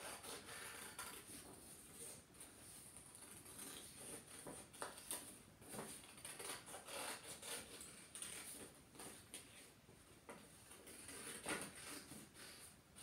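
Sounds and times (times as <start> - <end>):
scissors snipping paper: 6.0 - 8.5.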